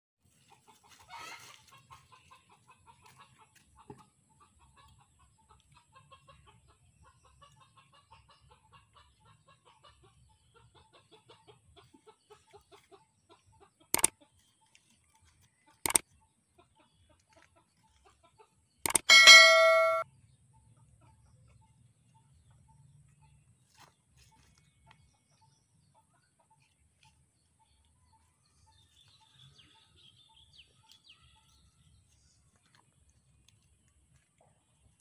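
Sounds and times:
chickens clucking: 0.3s - 20.0s
sharp clicks: 15.8s - 16.0s, 18.8s - 20.0s.

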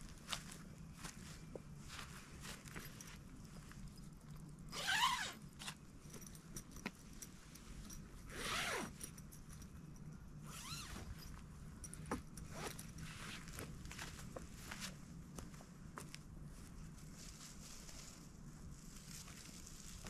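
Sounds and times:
zipper pulled: 4.7s - 5.8s, 8.2s - 9.1s, 10.4s - 11.2s, 12.4s - 13.6s.

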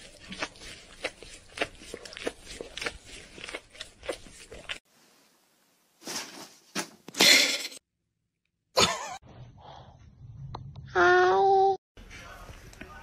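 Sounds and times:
dog licking kitten: 0.0s - 4.8s.

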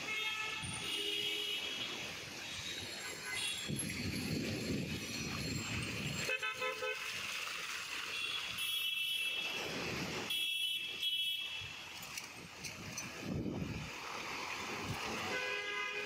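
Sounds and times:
vehicle horns honking: 0.0s - 2.0s, 3.0s - 3.7s, 6.2s - 7.1s, 8.1s - 9.7s, 10.3s - 11.8s, 15.2s - 16.0s
low traffic rumble: 11.8s - 16.0s.

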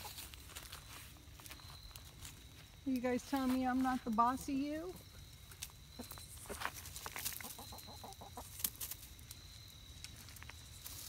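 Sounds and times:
chickens clucking: 0.0s - 0.8s, 5.4s - 9.0s.

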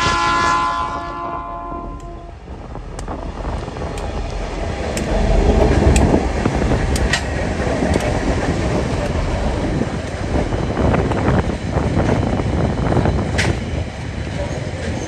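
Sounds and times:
diesel locomotive engine rumble: 0.0s - 15.0s
train wheels on rails: 0.0s - 15.0s
light ticks: 2.0s - 2.2s, 2.9s - 6.1s, 7.9s - 8.2s.

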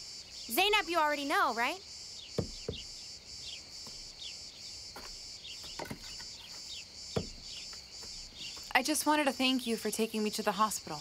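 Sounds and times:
bird chirps: 0.0s - 10.4s
crickets chirping: 0.0s - 11.0s
soft thuds: 2.3s - 3.0s, 4.9s - 8.7s.

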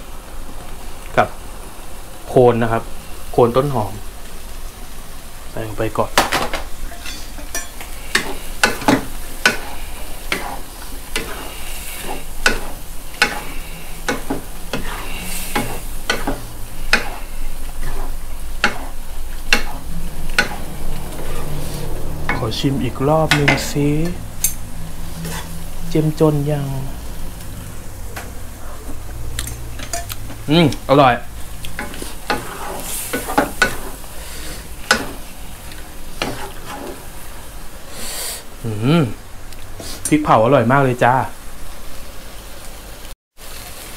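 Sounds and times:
food sizzling in a wok: 0.0s - 43.9s
wooden spatula scraping wok: 6.6s - 38.0s.

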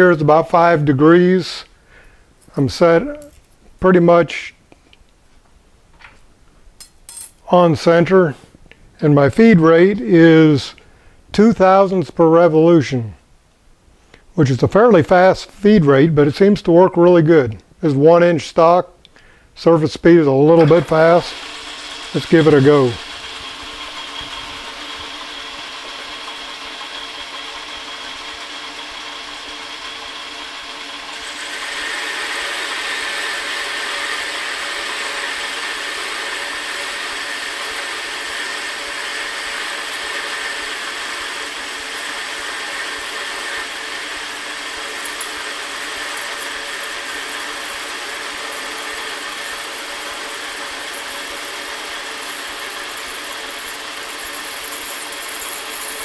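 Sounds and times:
blade cutting steel bar: 20.5s - 56.0s
lathe gear whine: 20.5s - 56.0s.

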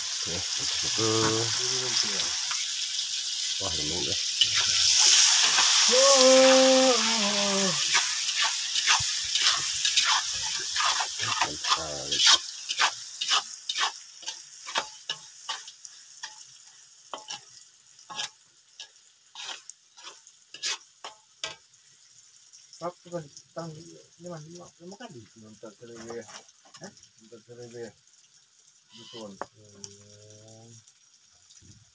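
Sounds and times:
food sizzling in a wok: 0.0s - 31.9s
spatula scraping a pan: 4.3s - 5.9s, 7.8s - 21.6s.

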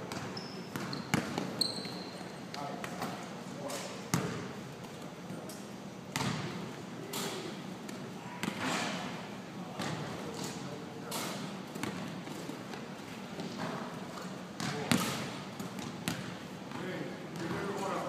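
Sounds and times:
basketball bouncing on gym floor: 0.0s - 2.0s, 4.1s - 4.5s, 6.1s - 6.6s, 9.8s - 10.1s, 11.1s - 12.4s, 14.6s - 17.8s.

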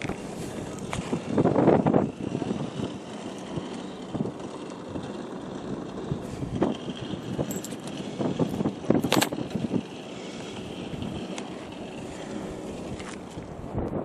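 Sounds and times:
wind noise on microphone: 0.0s - 10.0s, 12.0s - 14.0s
rustles clicks and knocks: 6.7s - 9.7s.

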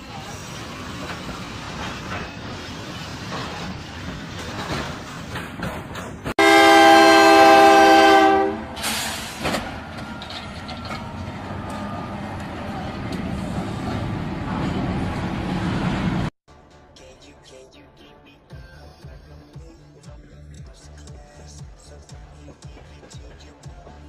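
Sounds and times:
freight train rumbling past: 0.0s - 16.3s
locomotive air horn blast: 6.4s - 9.5s.

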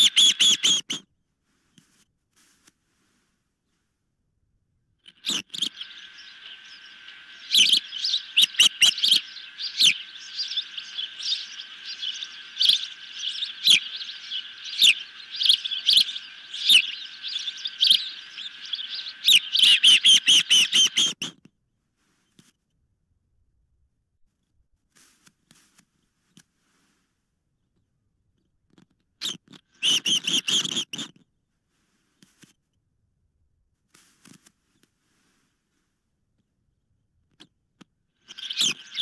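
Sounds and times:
young ospreys chirping: 0.0s - 1.0s, 5.1s - 21.3s, 29.8s - 31.1s, 38.2s - 39.0s
soft continuous bird calling: 0.0s - 3.9s, 5.0s - 21.4s, 28.7s - 32.5s, 38.1s - 39.0s.

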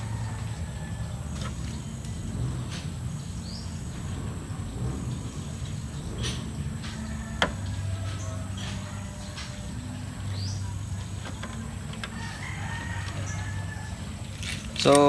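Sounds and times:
rooster crowing: 0.0s - 1.3s, 6.8s - 9.7s, 12.0s - 14.4s
radiator cap clicking and scraping: 6.2s - 15.0s.

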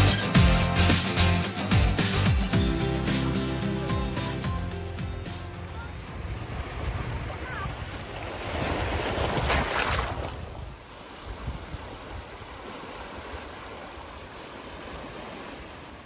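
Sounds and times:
sea waves washing over rocks: 5.5s - 16.0s.

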